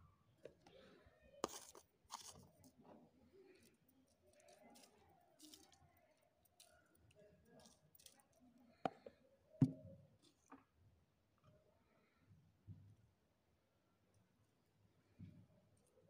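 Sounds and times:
salt sprinkling on vegetables: 0:01.4 - 0:02.8, 0:03.4 - 0:08.6.

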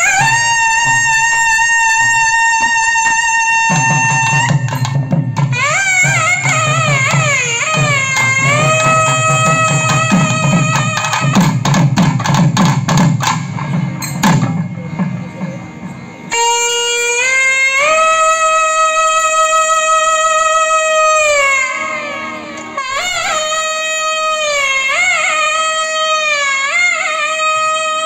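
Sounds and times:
trumpet melody: 0:00.0 - 0:12.4, 0:16.3 - 0:28.0
drums beating: 0:00.0 - 0:17.9.

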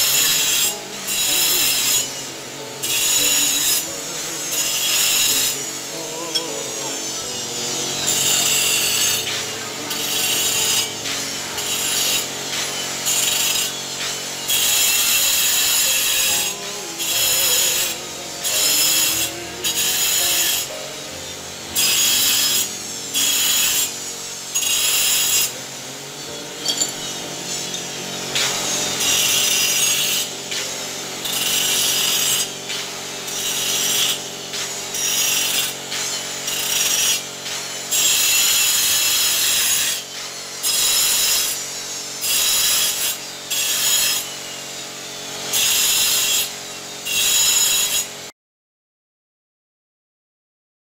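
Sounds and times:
hand tool scraping stone: 0:00.0 - 0:20.8, 0:24.6 - 0:25.6, 0:26.2 - 0:41.6.

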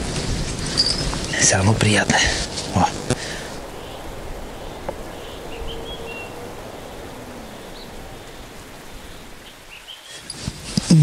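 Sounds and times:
outdoor hiss: 0:00.0 - 0:11.0
high bird chirps: 0:00.7 - 0:01.2, 0:03.5 - 0:10.2.

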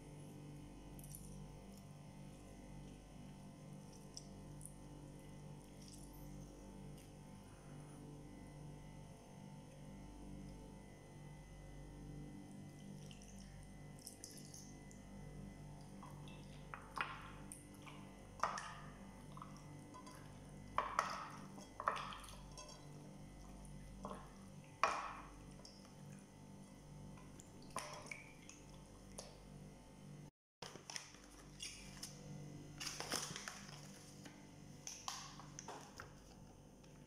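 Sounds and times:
faint steady hum: 0:00.0 - 0:37.0
wet squelches and slaps: 0:13.0 - 0:15.0, 0:27.2 - 0:29.5, 0:34.8 - 0:36.0.

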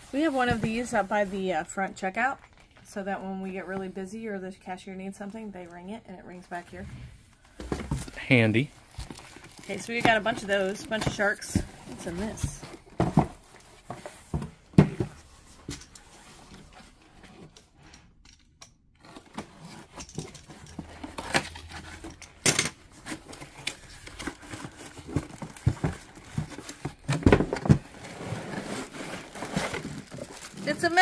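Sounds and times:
cardboard packaging rustling and tearing: 0:08.6 - 0:14.3, 0:19.0 - 0:31.0.

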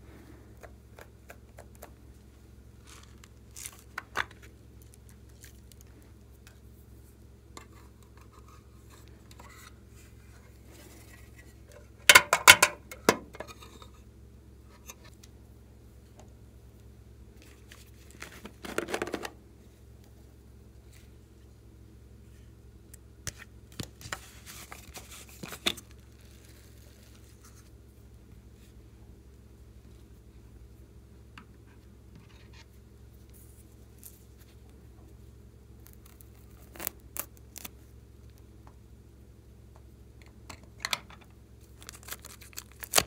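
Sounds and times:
rustling and scraping: 0:02.8 - 0:14.1, 0:17.4 - 0:19.4, 0:23.3 - 0:27.8, 0:31.6 - 0:35.1.

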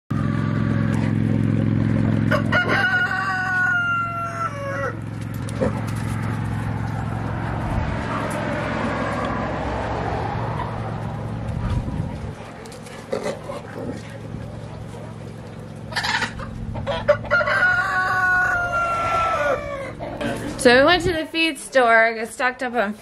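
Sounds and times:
steady low hum: 0:00.1 - 0:17.4
rooster crowing: 0:02.2 - 0:05.1, 0:15.9 - 0:20.2.

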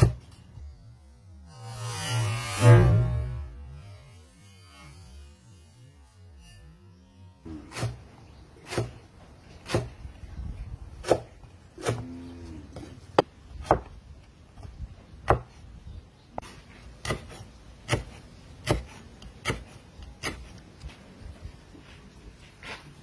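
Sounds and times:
cleaver chopping on wooden board: 0:08.6 - 0:09.0, 0:09.6 - 0:10.0, 0:11.0 - 0:12.1, 0:12.8 - 0:13.9, 0:15.2 - 0:15.5, 0:17.0 - 0:20.5.

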